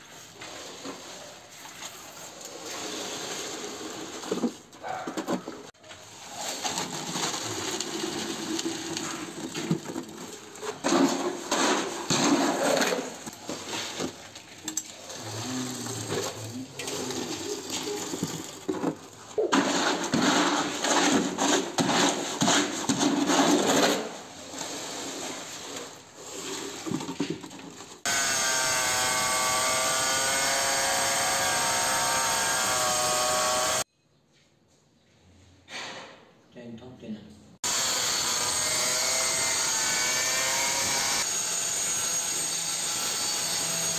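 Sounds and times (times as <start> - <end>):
trowel scraping mortar: 6.2 - 14.3, 14.9 - 27.4
angle grinder cutting tile: 15.0 - 17.4, 28.0 - 33.9, 37.6 - 43.9.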